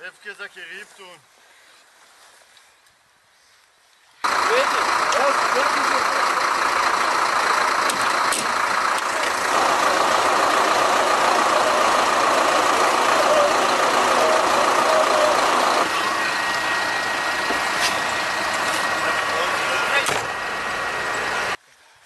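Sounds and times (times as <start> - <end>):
military vehicle engine droning: 4.2 - 21.6.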